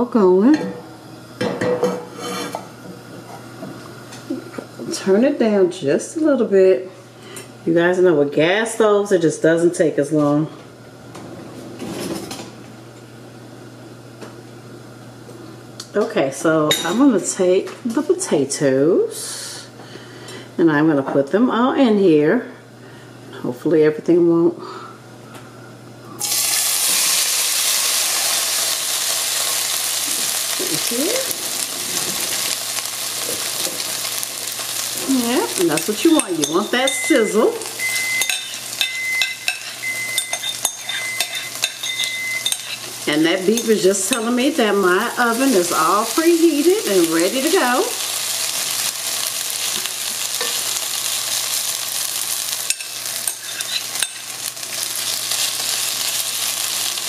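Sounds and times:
scraping against pan: 1.8s - 2.6s, 53.3s - 54.2s
potatoes sizzling in oil: 26.2s - 57.0s.

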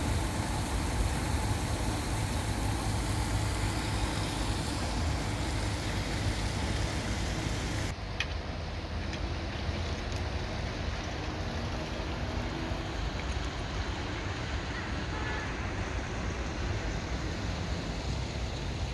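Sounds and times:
excavator diesel engine rumble: 0.0s - 7.9s
faint engine hum: 0.0s - 15.5s.

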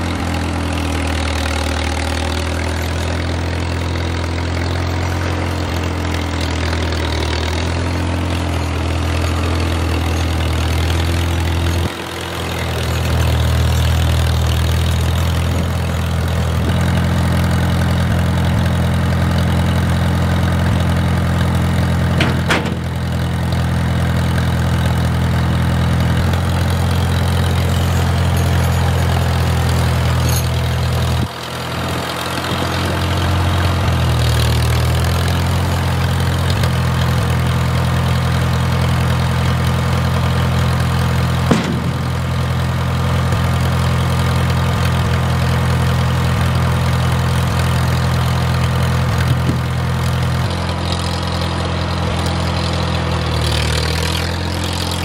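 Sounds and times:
engine running steadily: 0.0s - 55.0s.

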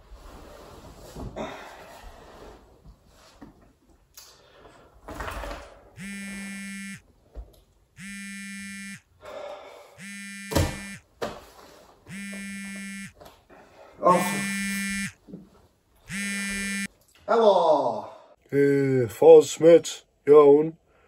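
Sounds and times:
mobile phone buzzing: 6.0s - 7.0s, 8.0s - 9.0s, 10.0s - 11.0s, 12.1s - 13.2s, 14.1s - 15.2s, 16.1s - 16.9s.

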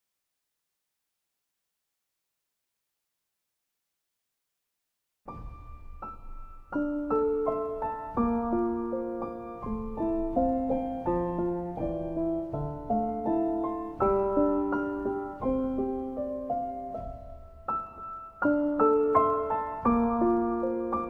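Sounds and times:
slow piano music: 5.3s - 21.0s.

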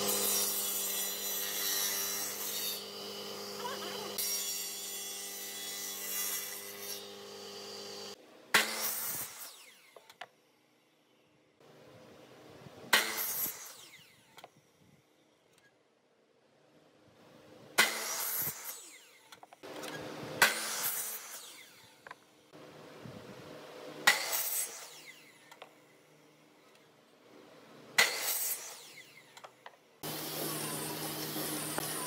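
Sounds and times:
saw blade cutting wood: 0.0s - 10.3s, 12.9s - 14.6s, 17.8s - 22.2s, 24.0s - 25.9s, 27.9s - 32.0s
miter saw motor whine: 30.0s - 32.0s.

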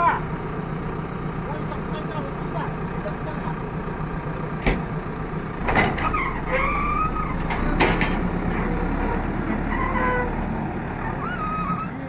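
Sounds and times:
backhoe diesel engine running: 0.0s - 12.0s
sharp knocks: 4.6s - 4.9s, 7.5s - 8.3s.

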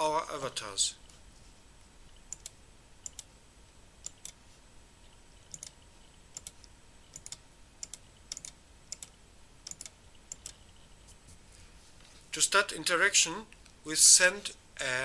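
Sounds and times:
low background hiss: 0.0s - 15.0s.

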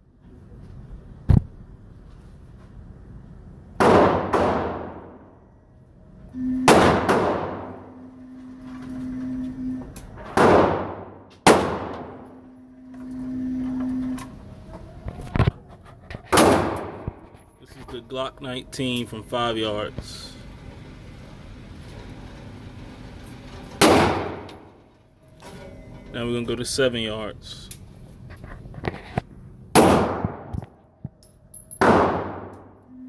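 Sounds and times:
echoing gunshots: 3.8s - 5.2s, 6.7s - 7.8s, 10.4s - 12.2s, 16.3s - 17.1s, 23.8s - 24.5s, 29.8s - 30.5s, 31.8s - 32.5s
target carrier motor humming: 7.6s - 10.2s, 12.0s - 15.7s.

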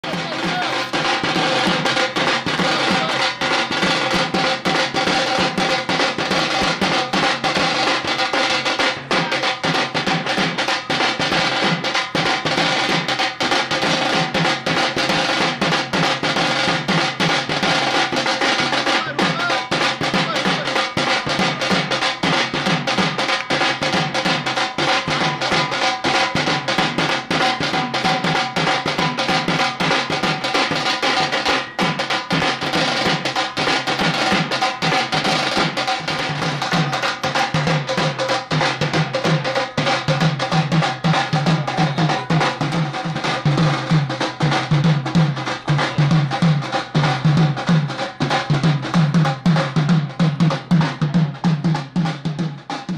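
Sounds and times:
drum-heavy music: 0.0s - 52.9s.

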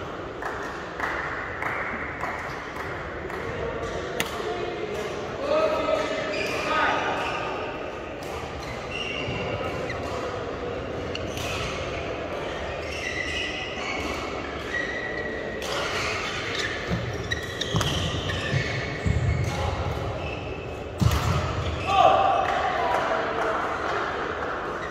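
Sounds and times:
shoes squeaking on court: 8.6s - 10.4s, 11.1s - 20.9s.

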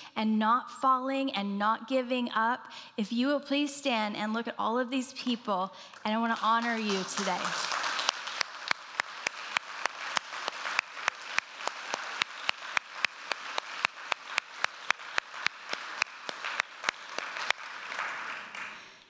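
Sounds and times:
close hand claps: 5.9s - 19.0s
audience applauding: 6.3s - 19.0s.

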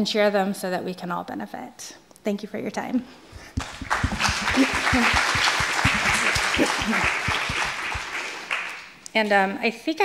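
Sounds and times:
audience applauding: 3.5s - 9.0s.

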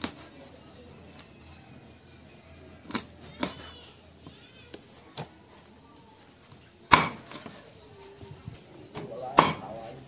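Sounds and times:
meat cleaver chopping on wooden board: 6.9s - 7.4s, 9.0s - 9.8s.

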